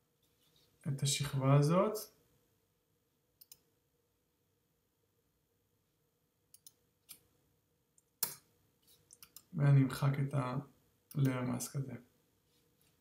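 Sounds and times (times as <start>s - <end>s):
computer mouse clicks: 3.4s - 3.7s, 6.5s - 7.2s, 9.1s - 9.5s.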